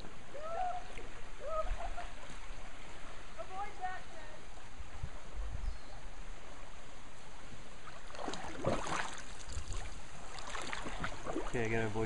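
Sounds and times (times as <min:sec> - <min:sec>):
creek water flowing and gurgling: 0:00.0 - 0:12.0
splashes in water: 0:07.8 - 0:11.8.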